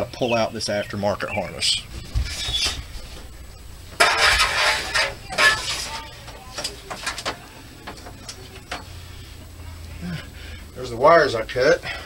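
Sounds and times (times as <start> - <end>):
wiring dragged with rustling scrape: 1.8 - 6.1.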